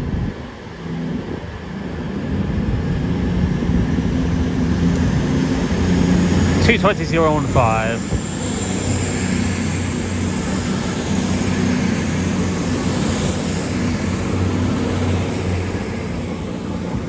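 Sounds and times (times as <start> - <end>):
diesel train engines running: 0.0 - 17.0.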